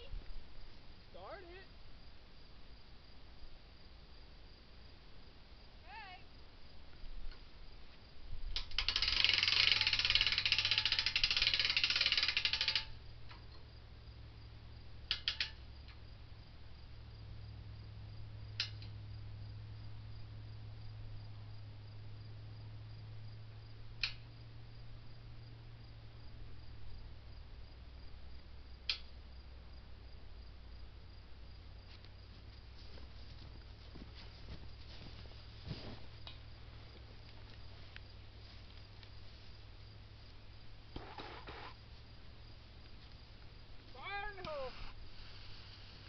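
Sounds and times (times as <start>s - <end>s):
low steady hum: 12.9s - 46.0s
faint sharp clicks: 15.1s - 16.0s, 18.6s - 19.0s, 24.0s - 24.3s, 28.8s - 29.1s
fuse hissing: 44.7s - 46.0s.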